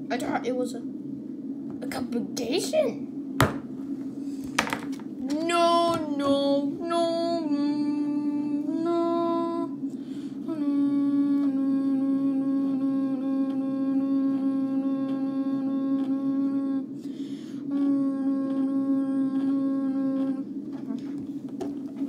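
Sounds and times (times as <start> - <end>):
child humming held notes: 5.2 - 21.2.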